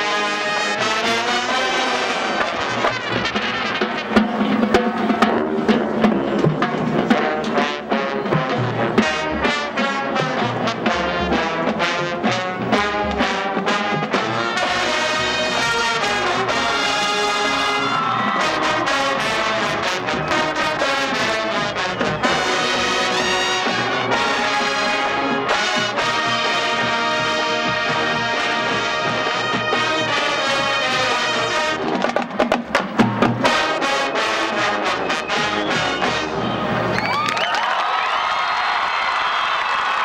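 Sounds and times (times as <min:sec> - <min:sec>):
brass section chords: 0:00.0 - 0:32.0, 0:32.9 - 0:36.9
marching band drum hits: 0:31.8 - 0:33.9.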